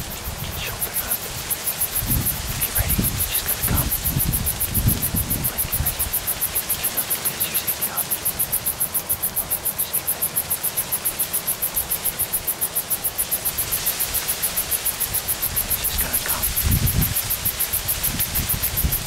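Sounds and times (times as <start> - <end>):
rustling in dry cornstalks: 0.0 - 19.0
wind hissing: 0.0 - 19.0.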